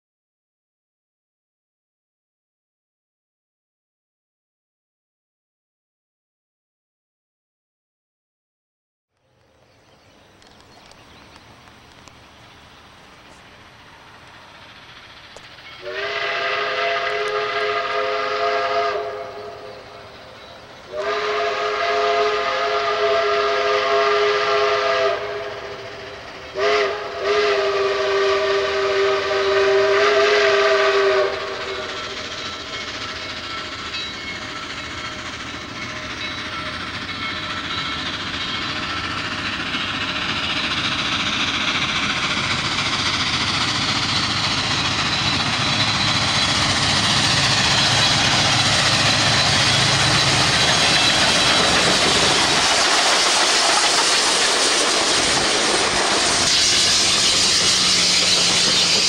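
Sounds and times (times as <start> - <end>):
steam train exhaust and running gear: 9.2 - 59.0
steam whistle blasts: 15.6 - 20.2, 20.9 - 32.8.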